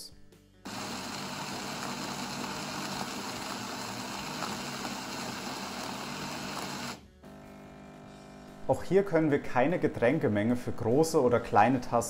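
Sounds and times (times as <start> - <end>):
coffee grinder grinding beans: 0.7 - 7.0.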